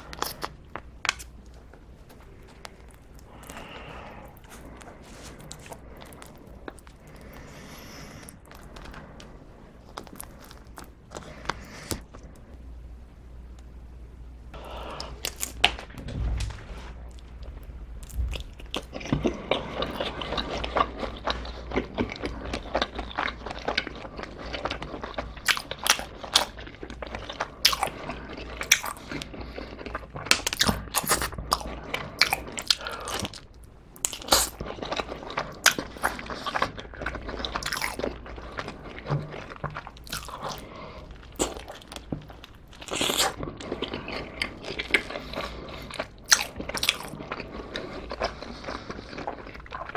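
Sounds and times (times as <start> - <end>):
chewing: 0.0 - 12.5, 17.0 - 49.9
crunchy bites of pizza crust: 17.3 - 49.9.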